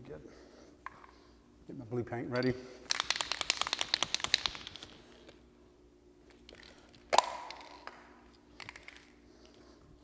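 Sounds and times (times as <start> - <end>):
spray can mixing ball rattling: 2.9 - 5.4
plastic cap snapping off: 6.5 - 9.1.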